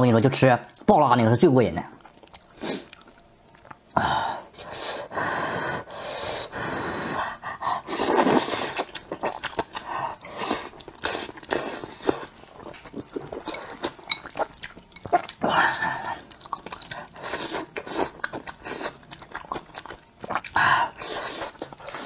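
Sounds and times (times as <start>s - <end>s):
chewing mouth clicks: 2.0s - 3.9s, 8.2s - 9.9s, 16.2s - 20.6s
person slurping noodles: 7.9s - 12.3s.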